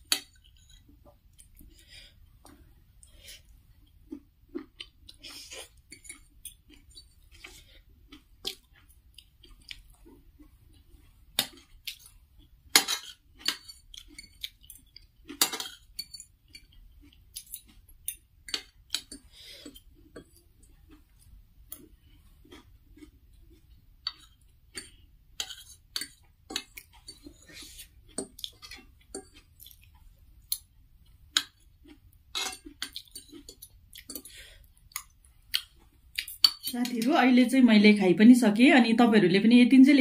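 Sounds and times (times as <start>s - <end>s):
close-up chewing: 0.1s - 36.7s
cutlery scraping a ceramic plate: 12.7s - 14.8s, 15.4s - 16.7s, 24.1s - 29.4s, 32.3s - 34.3s.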